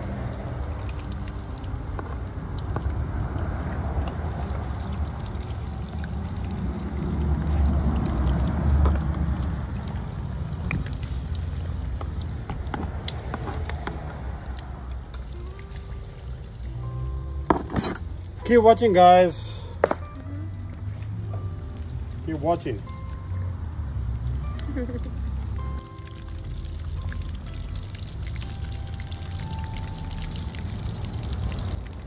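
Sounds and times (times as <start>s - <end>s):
fish sizzling in hot oil: 0.0s - 19.8s, 20.8s - 32.0s
oil pops and crackles: 0.3s - 3.0s, 3.7s - 16.0s.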